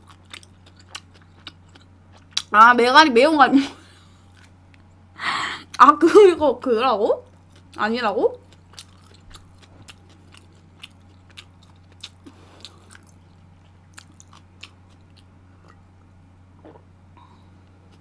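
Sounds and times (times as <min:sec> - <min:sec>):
steady low hum: 0:00.0 - 0:18.0
chewing and sipping mouth sounds: 0:08.4 - 0:15.9.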